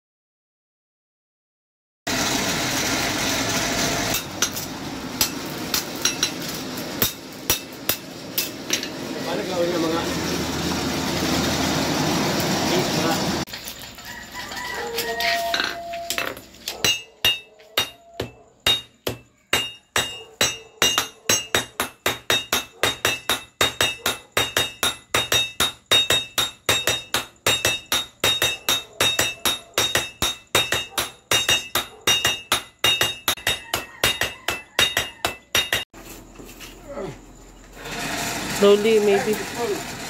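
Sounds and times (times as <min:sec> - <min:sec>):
hammers ringing on anvil: 0:05.2 - 0:06.4, 0:07.0 - 0:09.0, 0:16.8 - 0:35.9.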